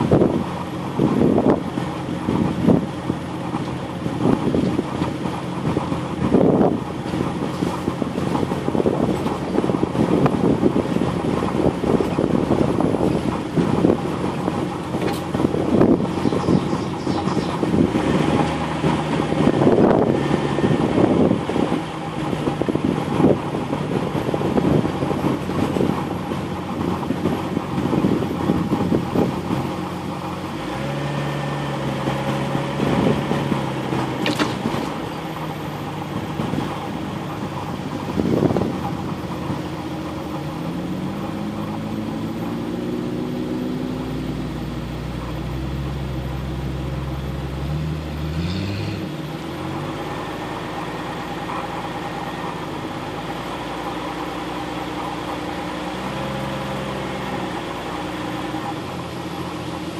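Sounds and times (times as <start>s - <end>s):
vehicle engine running: 0.0s - 59.9s
vehicle rattling over bumps: 0.0s - 59.9s.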